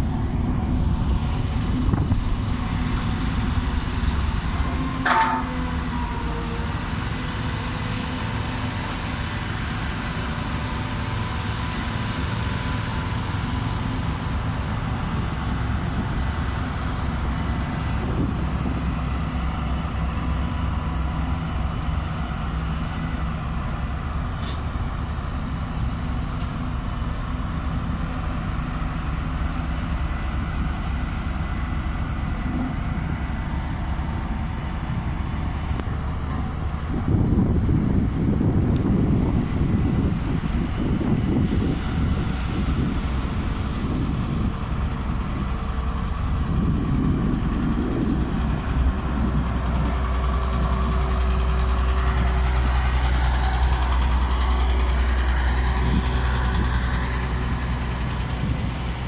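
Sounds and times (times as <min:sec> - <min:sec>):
heavy machinery engine humming: 0:00.0 - 0:59.0.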